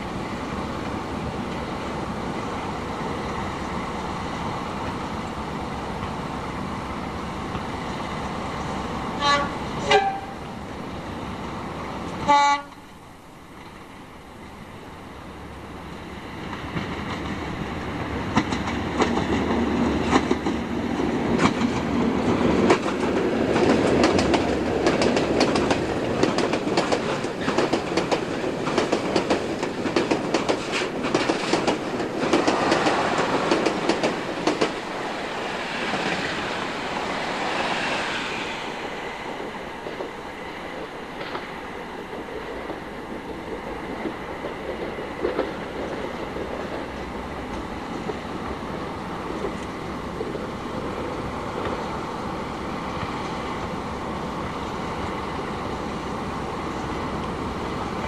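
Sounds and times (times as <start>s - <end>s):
train wheels clicking over rail joints: 16.5s - 52.0s.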